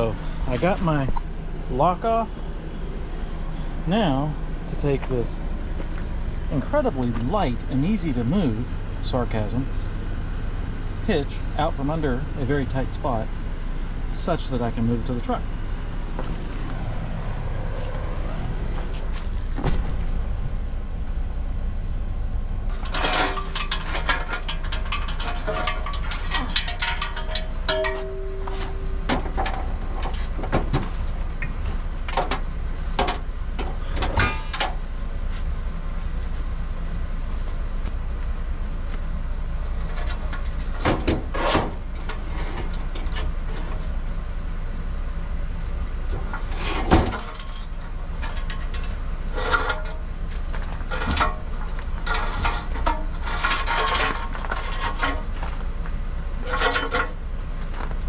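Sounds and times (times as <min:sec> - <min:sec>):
steady low rumble: 0:00.0 - 0:58.0
metal clanks and knocks: 0:22.7 - 0:34.8, 0:39.8 - 0:43.8, 0:46.1 - 0:55.7, 0:56.4 - 0:57.9.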